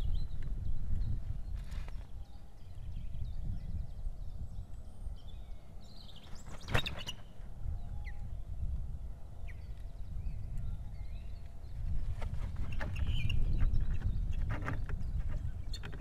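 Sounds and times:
faint small bird chirps: 0.0s - 8.4s, 9.4s - 16.0s
wind rumble on microphone: 0.0s - 16.0s
osprey whistled chirps: 12.6s - 13.9s.

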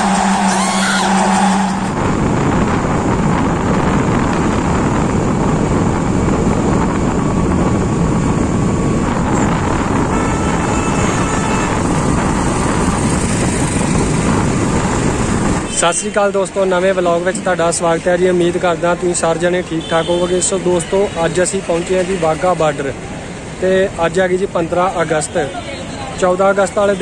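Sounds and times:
wind rushing over microphone: 0.0s - 19.2s
moving vehicle road noise: 0.0s - 27.0s.

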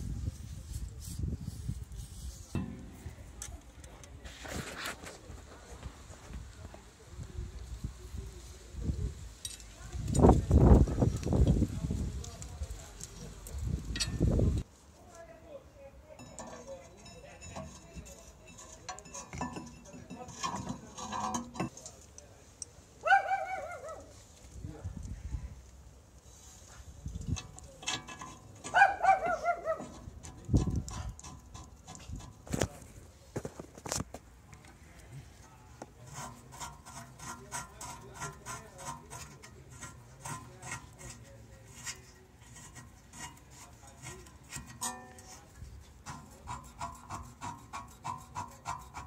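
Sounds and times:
hand scraping metal brake parts: 0.4s - 5.2s, 9.4s - 14.7s, 16.1s - 22.7s, 26.3s - 34.2s, 35.8s - 49.0s
sharp metal clicks and rings: 16.2s - 21.8s
metal clinks of brake parts: 16.2s - 22.0s.

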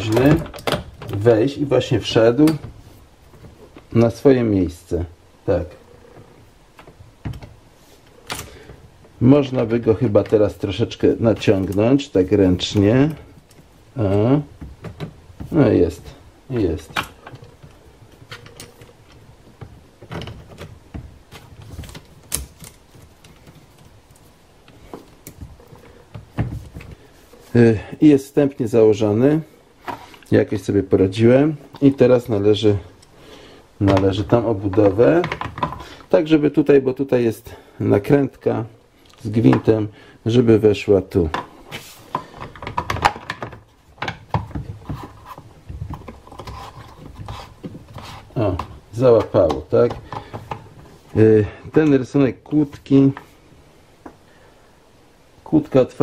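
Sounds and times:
plastic clicks and knocks: 33.8s - 35.8s, 42.1s - 50.8s
scraping rubs: 44.8s - 48.6s.

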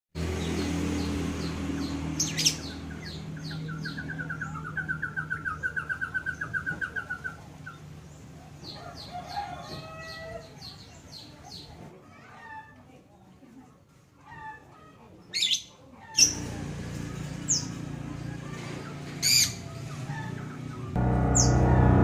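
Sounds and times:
birds chirping: 0.2s - 11.8s, 15.2s - 22.0s
fast run of repeated bird notes: 16.3s - 22.0s
steady low hum: 20.9s - 22.0s.

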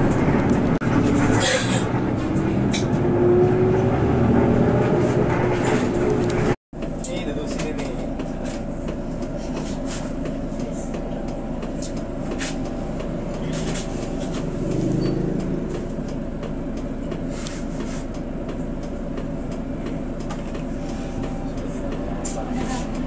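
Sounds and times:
train rumbling: 0.0s - 23.0s.

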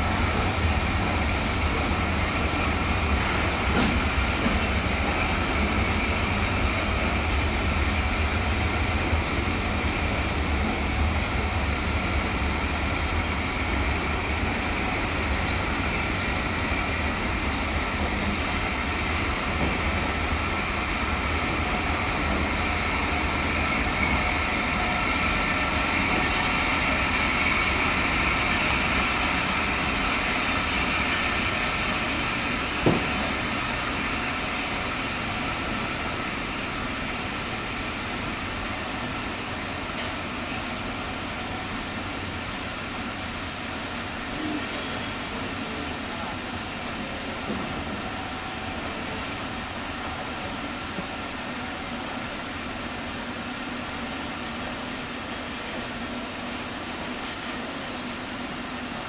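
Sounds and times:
high steady wheel squeal: 0.0s - 52.4s
train wheels rumbling on rail: 0.0s - 59.0s
sharp knock: 32.8s - 33.1s.

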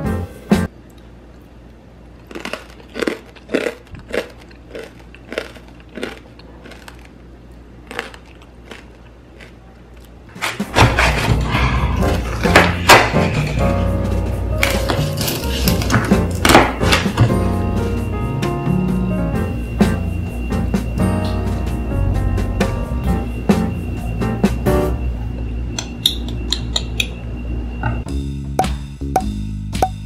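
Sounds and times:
crispy skin crunching: 2.2s - 7.2s.

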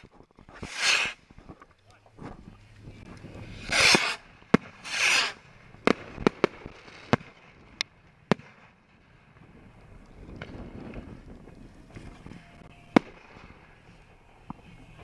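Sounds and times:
firework pops and cracks: 0.0s - 12.3s, 12.9s - 15.0s
firework hissing whoosh: 0.6s - 1.3s, 3.2s - 7.2s.

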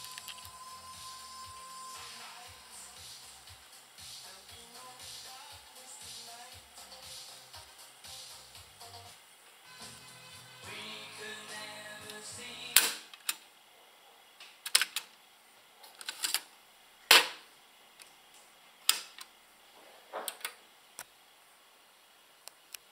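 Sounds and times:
music from cassette deck: 0.0s - 13.0s.

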